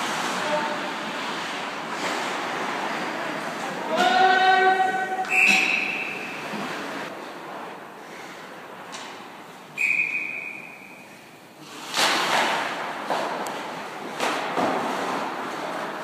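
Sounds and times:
crowd noise: 0:00.0 - 0:11.7
referee's whistle blast: 0:05.2 - 0:06.4, 0:09.8 - 0:11.0.

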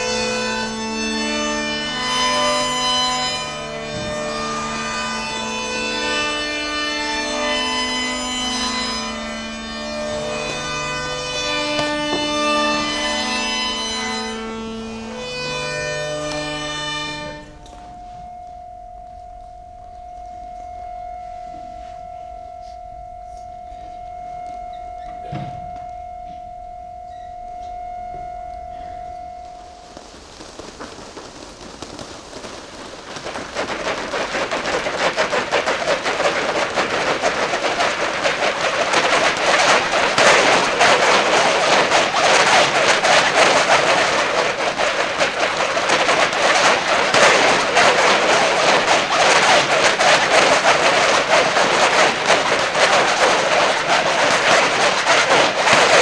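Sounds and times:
plastic tubes rattling on floor: 0:01.2 - 0:17.8, 0:29.8 - 0:56.0
steady ringing tone: 0:01.4 - 0:31.5.

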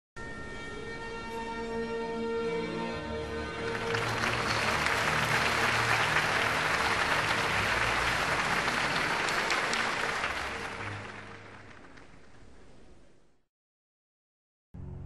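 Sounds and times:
crowd applauding: 0:03.5 - 0:12.6.

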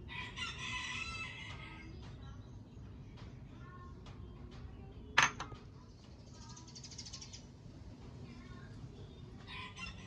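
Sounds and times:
dish knocking against bowl: 0:05.2 - 0:05.6
faint bird chirps: 0:05.8 - 0:07.6.

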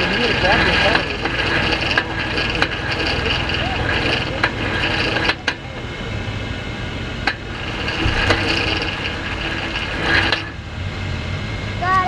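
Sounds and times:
sharp clicks and knocks: 0:00.0 - 0:05.9, 0:07.2 - 0:10.6
engine idling: 0:00.0 - 0:12.0.

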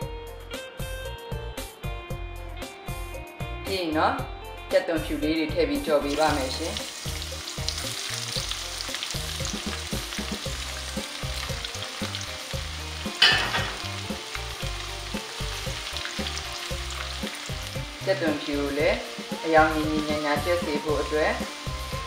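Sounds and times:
garlic sizzling in hot oil: 0:05.2 - 0:22.0.

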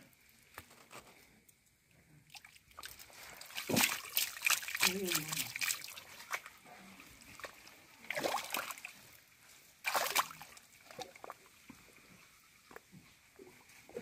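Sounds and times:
water splashes: 0:02.2 - 0:14.0
hand sloshing in muddy water: 0:02.3 - 0:11.6.

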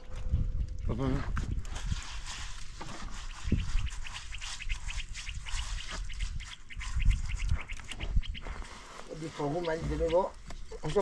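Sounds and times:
birds calling high notes: 0:03.2 - 0:11.0.

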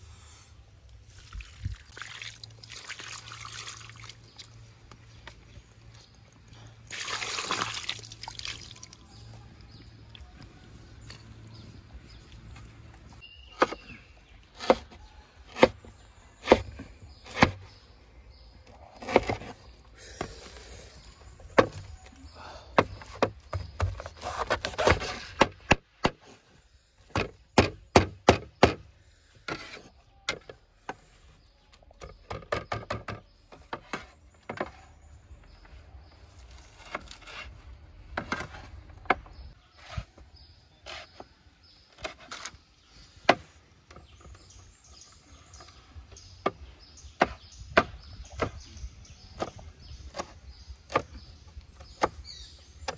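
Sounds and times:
cleaver chopping on wooden board: 0:27.2 - 0:28.8, 0:47.2 - 0:48.7.

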